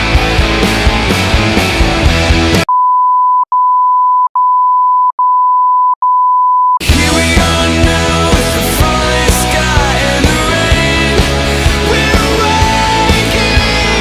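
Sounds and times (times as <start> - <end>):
rock music: 0.0 - 2.7, 6.8 - 14.0
electronic beep tone: 2.7 - 6.8.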